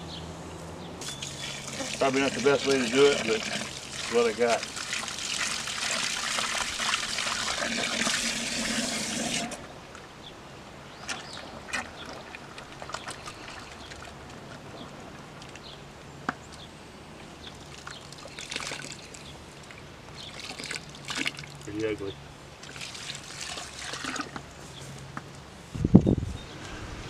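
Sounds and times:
hose spraying into bucket: 1.0s - 9.6s
water gurgling and splashing: 1.2s - 9.7s, 17.6s - 19.2s, 20.2s - 21.7s, 22.6s - 24.4s.

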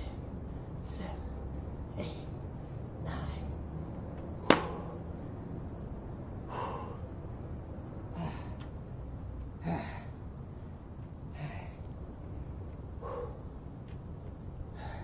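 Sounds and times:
sharp smack: 4.4s - 4.8s
man breathing hard: 6.4s - 7.3s, 8.0s - 8.8s, 9.5s - 13.8s, 14.6s - 15.0s.

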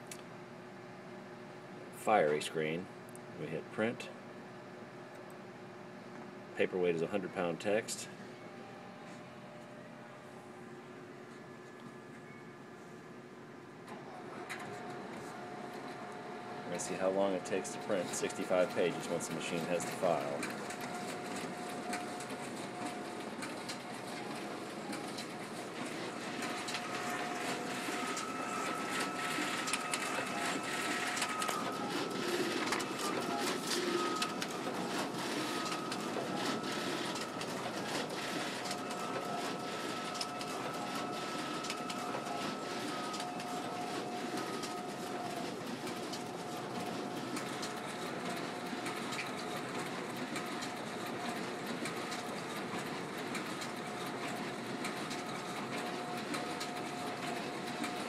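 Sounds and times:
printer running: 12.8s - 58.0s
printer clicks: 18.0s - 58.0s.

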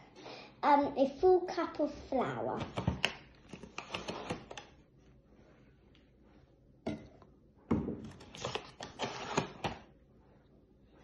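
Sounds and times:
kitchen items rustling and scraping: 2.5s - 7.3s, 8.0s - 10.0s.

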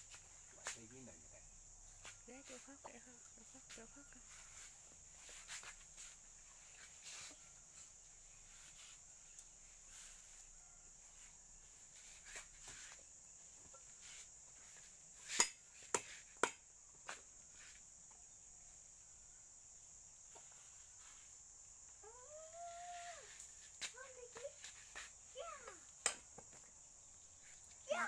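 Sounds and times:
insects chirring: 0.0s - 28.0s
sugar cane snapping: 15.3s - 16.6s, 25.9s - 26.4s.

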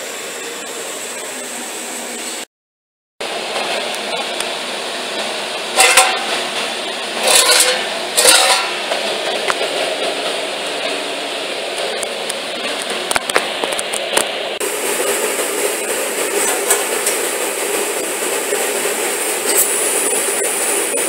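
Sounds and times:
sheet metal scraping and clattering: 5.8s - 6.4s, 7.2s - 8.9s.

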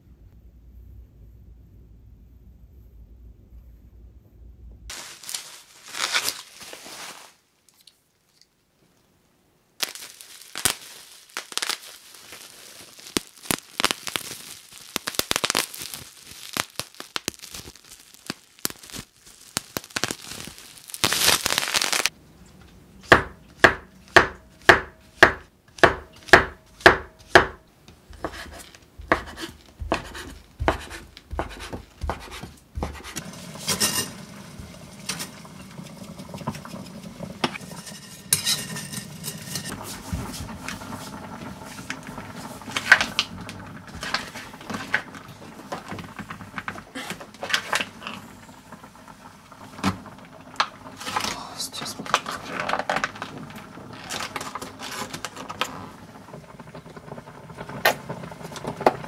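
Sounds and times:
bubble wrap crinkling and tearing: 4.9s - 8.0s, 9.8s - 22.2s, 50.6s - 56.0s
knife chopping on cutting board: 23.1s - 33.2s.

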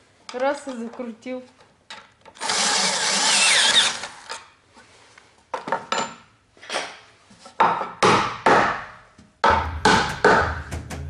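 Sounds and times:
cordless drill whirring: 2.4s - 4.4s.

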